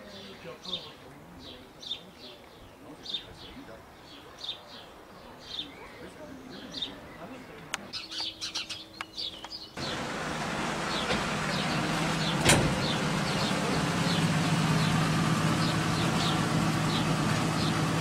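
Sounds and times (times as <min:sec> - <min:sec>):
car engine idling: 0:09.8 - 0:18.0.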